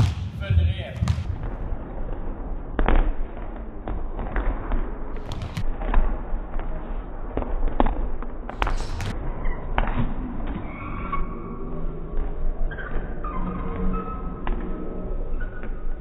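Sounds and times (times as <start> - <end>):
basketballs bouncing on hard floor: 0.0 - 1.7, 2.8 - 6.0.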